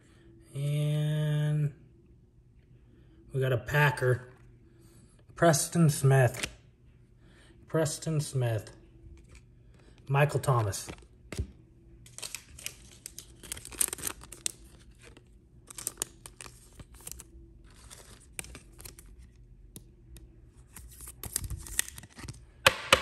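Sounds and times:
faint steady hum: 0.0 - 22.9
cards rustling and scraping: 9.1 - 22.5.

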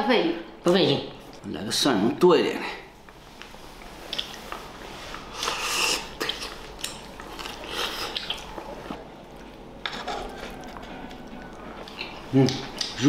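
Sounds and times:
man chewing food: 3.0 - 13.0
wet mouth sounds: 4.1 - 4.5, 5.1 - 9.1, 9.8 - 13.0.

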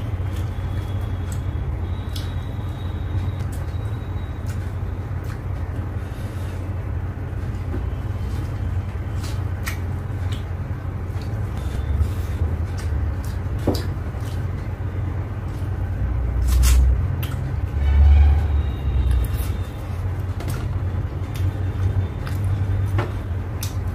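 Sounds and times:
eating clicks and smacks: 0.0 - 5.8, 9.2 - 11.8, 12.4 - 14.8, 16.5 - 17.7, 19.0 - 23.9.

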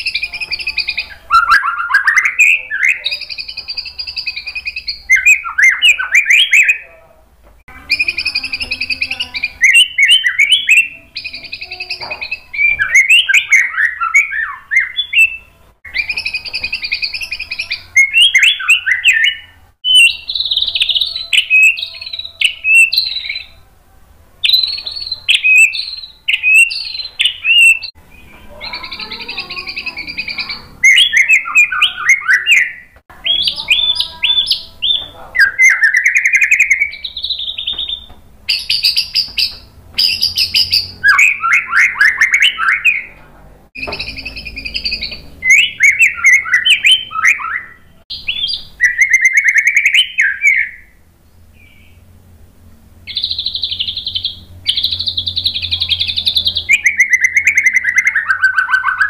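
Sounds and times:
bird singing varied phrases: 0.0 - 23.7, 24.4 - 43.2, 43.8 - 52.3, 53.0 - 59.0.

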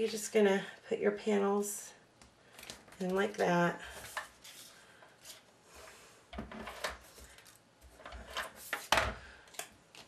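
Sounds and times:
paper rustling: 2.6 - 5.5.

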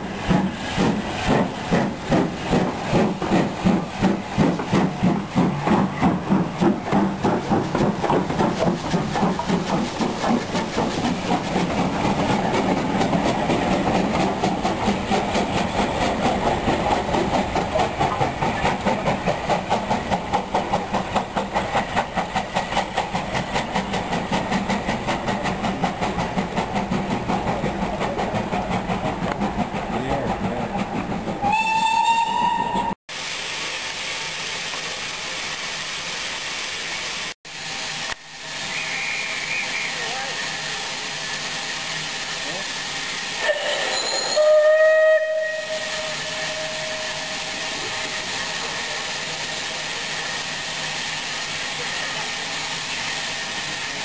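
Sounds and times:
steam locomotive exhaust beating: 0.0 - 54.0
steam whistle: 31.4 - 33.0, 38.7 - 40.1, 43.4 - 47.9.

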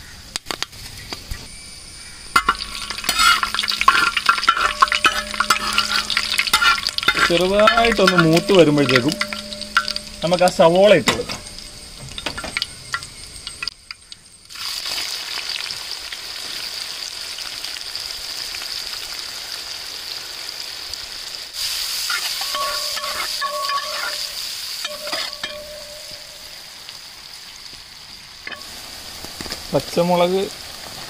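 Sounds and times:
onions sizzling in oil: 0.1 - 31.0
metal spatula stirring: 2.3 - 13.7, 22.1 - 26.4.

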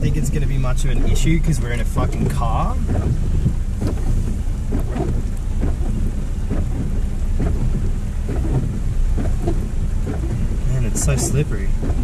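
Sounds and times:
tyres and water rumbling: 0.0 - 12.0
water splashing: 0.0 - 12.0
knocks against car underside: 1.9 - 12.0.

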